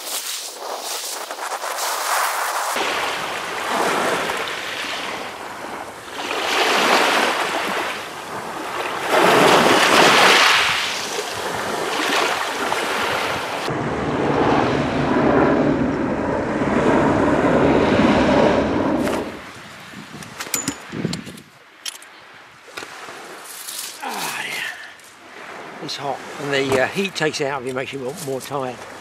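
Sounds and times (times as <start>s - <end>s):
waves breaking on shingle: 0.0s - 13.6s
helicopter rotor drone: 13.6s - 19.4s.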